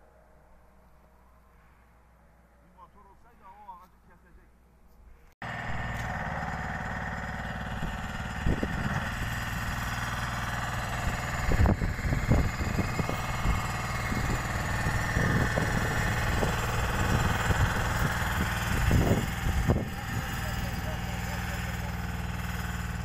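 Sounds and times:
motor running: 5.4 - 23.0.

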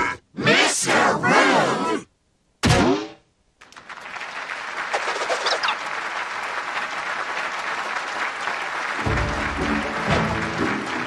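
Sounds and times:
audience applause: 3.6 - 11.0.

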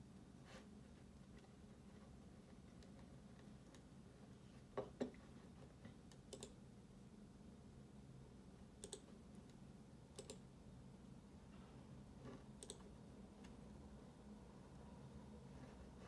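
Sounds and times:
computer mouse clicking: 6.0 - 6.6, 8.8 - 10.5, 12.4 - 13.6.

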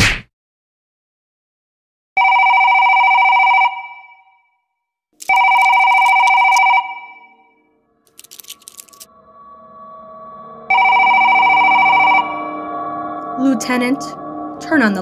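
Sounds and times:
telephone bell ringing: 2.2 - 4.4, 5.2 - 7.5.

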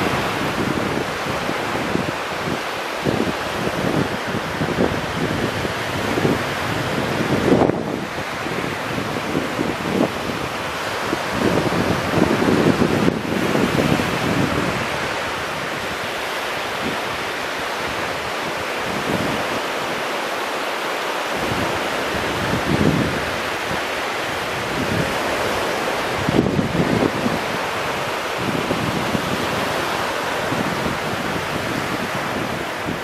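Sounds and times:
wind buffeting microphone: 0.0 - 20.2, 21.3 - 33.0
small waves breaking on beach: 0.0 - 33.0.

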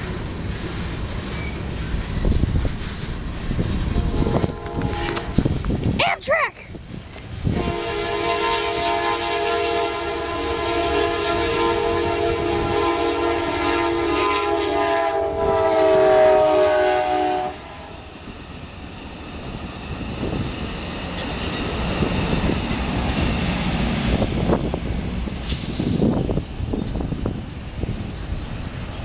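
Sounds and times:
train wheels rumbling on rails: 0.0 - 6.0, 6.6 - 29.0
locomotive air horn: 4.0 - 5.5, 7.5 - 18.0.

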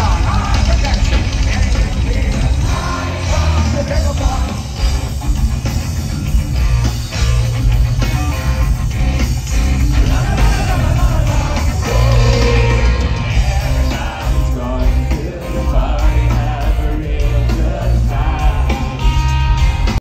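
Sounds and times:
man singing: 0.0 - 4.8, 9.9 - 19.3
live rock band playing: 0.0 - 20.0.

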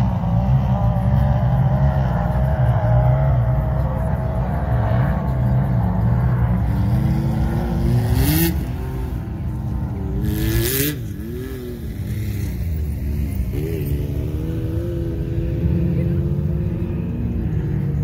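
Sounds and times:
off-road vehicle engine revving: 0.0 - 18.0.

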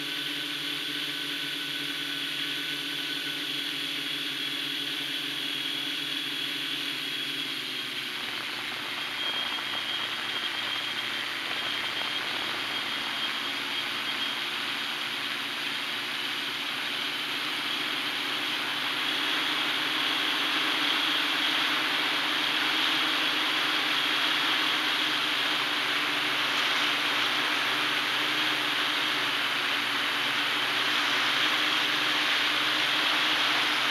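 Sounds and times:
drone motors whining: 0.0 - 33.9
propeller rushing noise: 7.6 - 33.9.

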